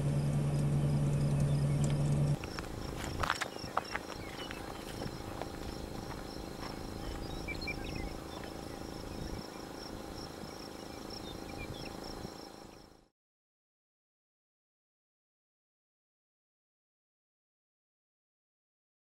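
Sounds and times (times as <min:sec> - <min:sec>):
low background rumble: 0:00.0 - 0:13.0
crickets chirping: 0:02.3 - 0:13.1.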